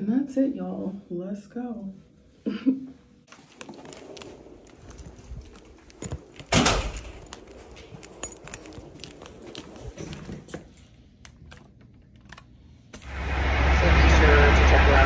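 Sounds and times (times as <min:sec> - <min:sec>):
heels walking on carpet: 0:03.3 - 0:10.9
metallic jangling: 0:04.6 - 0:10.2.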